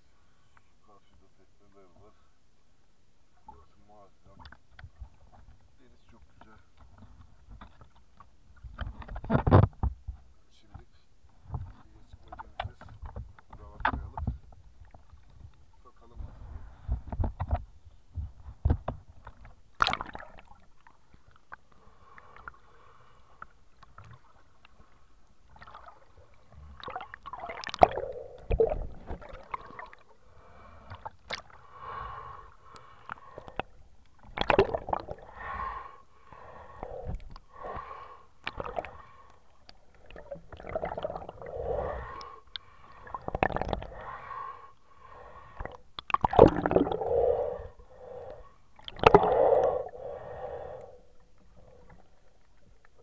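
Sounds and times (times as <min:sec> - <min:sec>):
muffled underwater water sloshing: 0:03.4 - 0:53.0.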